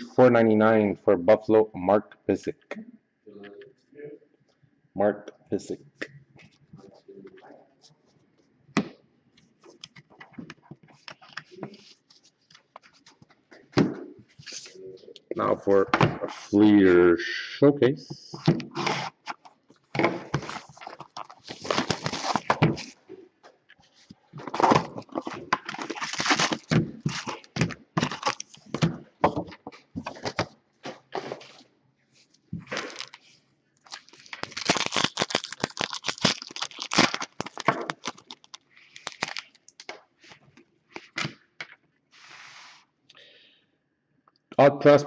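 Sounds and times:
cards rustling: 20.3s - 23.0s, 32.7s - 33.3s, 33.9s - 40.4s
foil wrappers crinkling and tearing: 20.4s - 23.0s, 24.8s - 28.7s, 32.7s - 39.9s.

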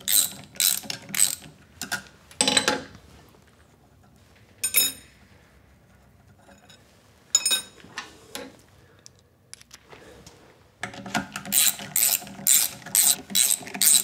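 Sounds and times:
ratchet clicking: 0.0s - 1.4s, 11.5s - 14.0s.

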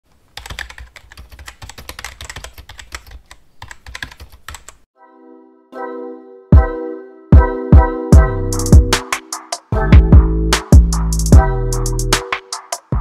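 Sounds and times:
held musical chord: 5.0s - 8.8s.

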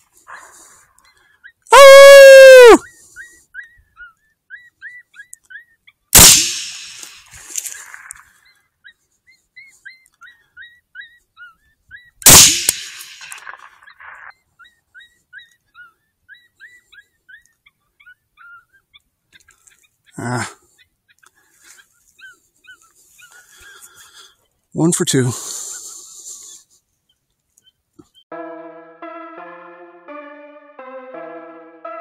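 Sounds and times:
rifle shots with echo: 6.2s - 7.1s, 12.3s - 13.8s.

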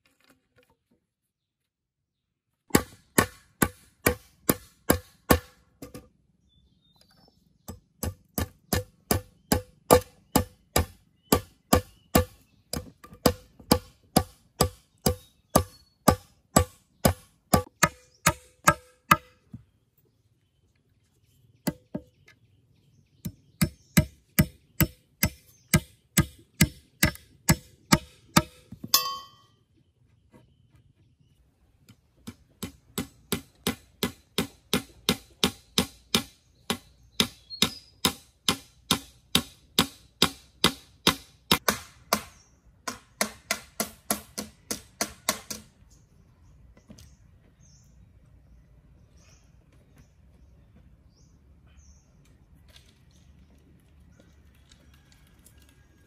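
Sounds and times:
hammer striking chisel into bamboo: 2.7s - 5.6s, 7.7s - 19.6s, 21.7s - 22.1s, 23.2s - 29.4s, 32.2s - 45.7s.

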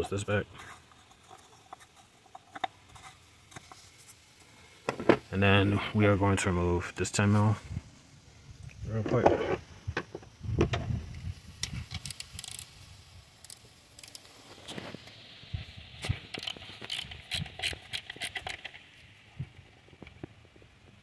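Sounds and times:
ratchet clicking: 11.6s - 12.8s, 13.4s - 14.3s.

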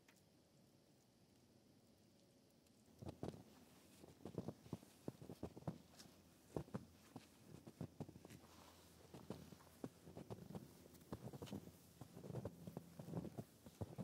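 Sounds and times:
footsteps crunching in snow: 3.0s - 14.0s.

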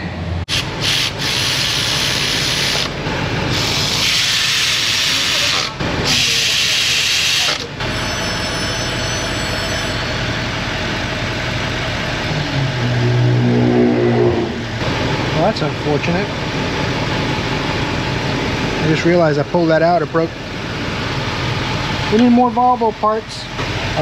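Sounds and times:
low hum: 9.9s - 15.4s.

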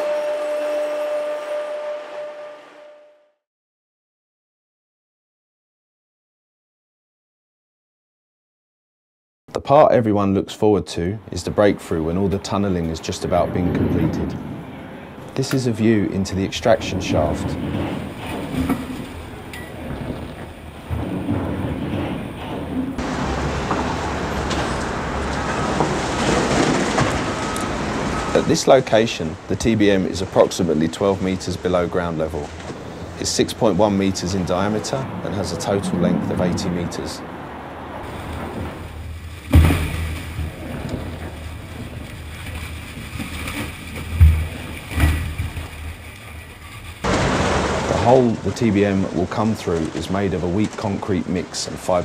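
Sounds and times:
concrete falling and thudding: 25.6s - 27.5s, 38.6s - 45.8s.

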